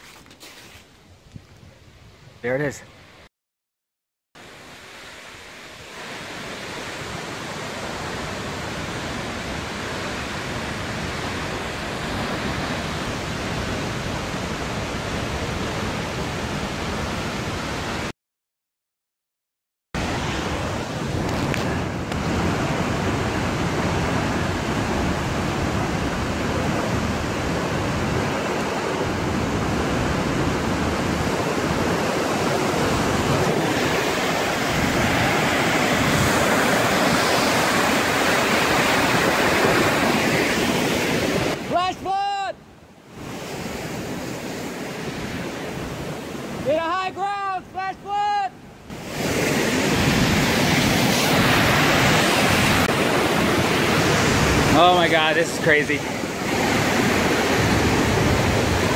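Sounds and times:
waterfall rushing: 48.9s - 58.9s.

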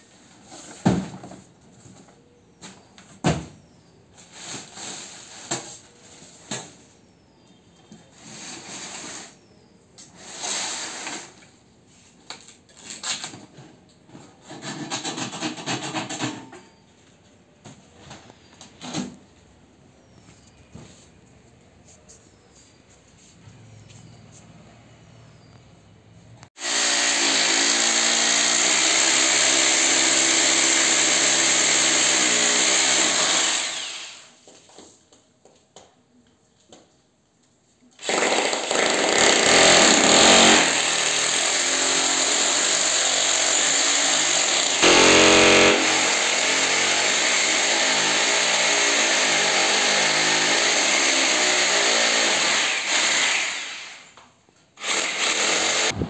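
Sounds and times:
electric drill boring into wall: 26.6s - 34.4s, 38.0s - 54.2s, 54.8s - 56.0s.

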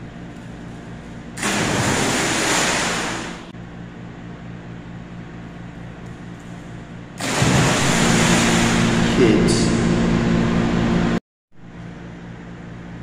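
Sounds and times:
steady low hum: 0.0s - 13.0s
big splash in pool: 1.4s - 3.5s, 7.2s - 9.2s.

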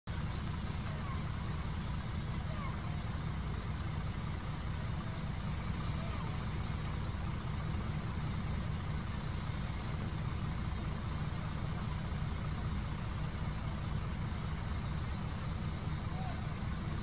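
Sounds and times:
hiss: 11.1s - 17.0s.

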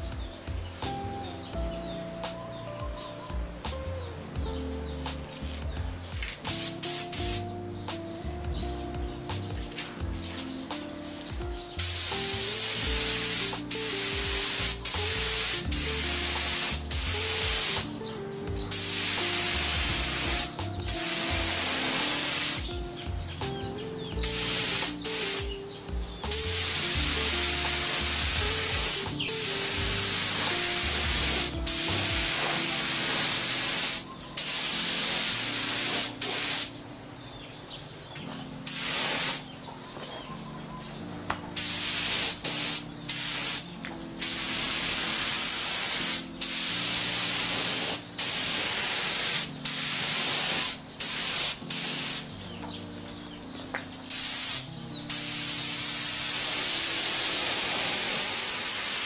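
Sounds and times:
spray gun hissing: 6.4s - 7.6s, 11.8s - 18.0s, 18.7s - 22.7s, 24.2s - 25.6s, 26.3s - 36.7s, 38.7s - 39.4s, 41.6s - 52.3s, 54.1s - 59.0s.

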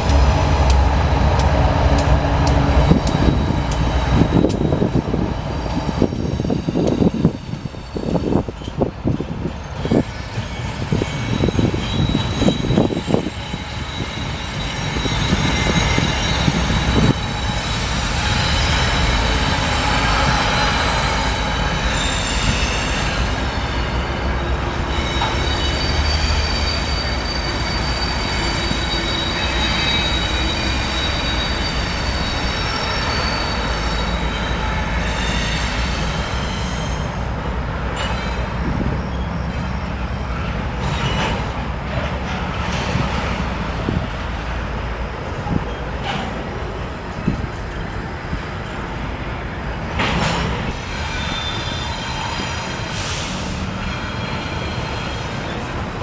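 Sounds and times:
diesel locomotive rumbling: 0.0s - 56.0s
high-pitched wheel squeal: 9.7s - 37.2s, 50.7s - 55.8s.

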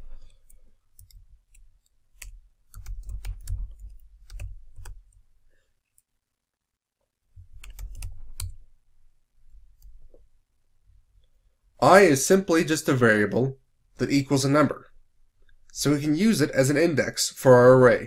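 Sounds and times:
keyboard typing: 0.0s - 5.2s, 7.4s - 8.6s.

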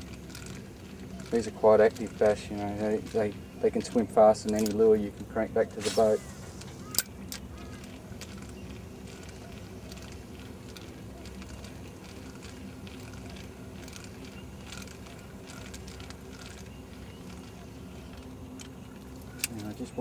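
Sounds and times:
fishing reel whirring: 0.0s - 20.0s.

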